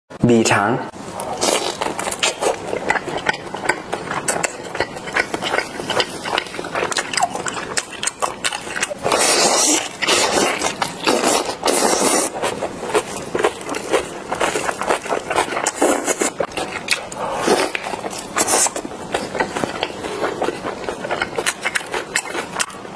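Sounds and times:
person chewing: 1.1 - 22.9
wet slurping: 4.1 - 22.4.

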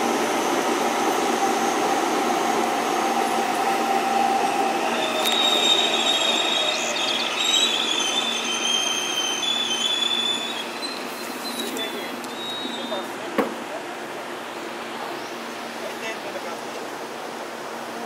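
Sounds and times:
train rolling on tracks: 0.0 - 18.0
metallic wheel squeal: 4.5 - 13.0.

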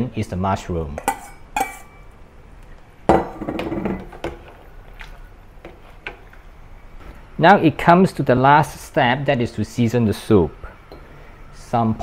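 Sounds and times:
metal bowl clinking on pot: 1.0 - 2.0.

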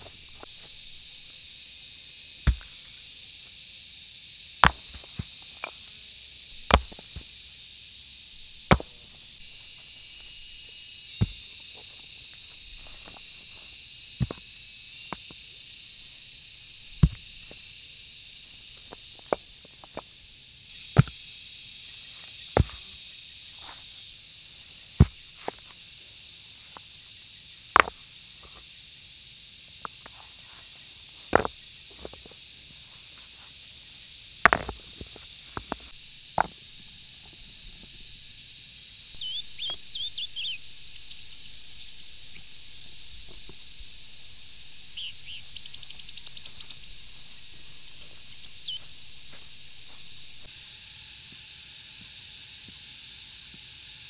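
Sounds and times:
insects humming: 0.0 - 54.0
stones clacking together: 2.5 - 2.8, 4.6 - 5.8, 6.5 - 7.3, 8.4 - 9.2, 11.2 - 11.9, 12.7 - 13.3, 14.2 - 14.4, 16.9 - 17.6, 21.0 - 21.2, 22.6 - 22.9, 27.8 - 28.0, 31.3 - 32.3, 34.3 - 38.1.

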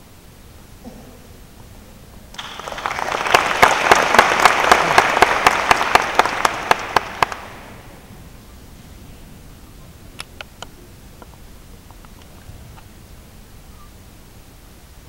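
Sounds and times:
loud rhythmic single claps: 2.3 - 8.0
audience applause: 2.4 - 8.0.

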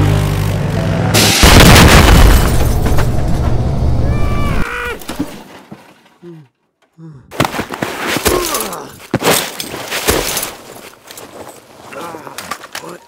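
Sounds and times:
gunshot-like cracks and crashes: 1.2 - 3.4.

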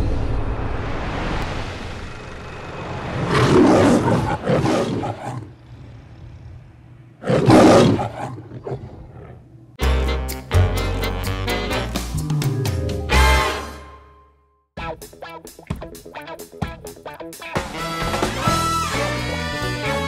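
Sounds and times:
lion roaring: 3.2 - 9.6
upbeat music with sharp drum hits: 9.8 - 13.8, 14.8 - 18.9
music bed: 9.8 - 20.0.

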